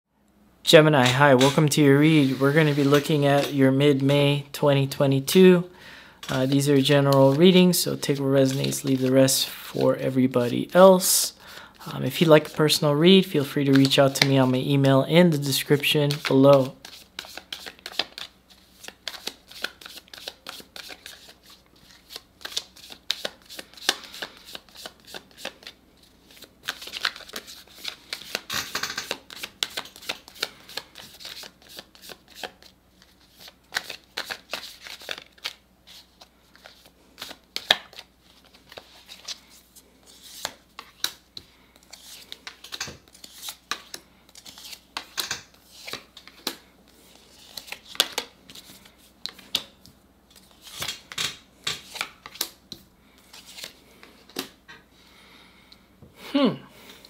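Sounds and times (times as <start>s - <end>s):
cards being shuffled: 1.0s - 4.1s, 13.6s - 14.6s, 16.0s - 52.6s, 53.2s - 54.6s.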